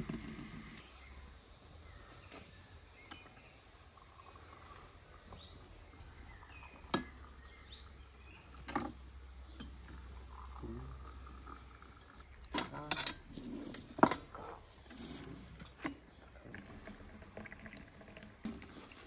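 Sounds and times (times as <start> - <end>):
tableware clinks: 12.9 - 13.2.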